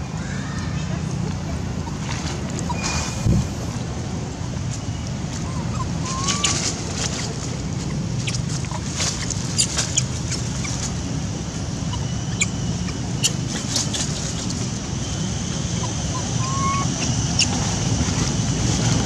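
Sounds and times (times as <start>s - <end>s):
wind on microphone: 2.4s - 4.1s.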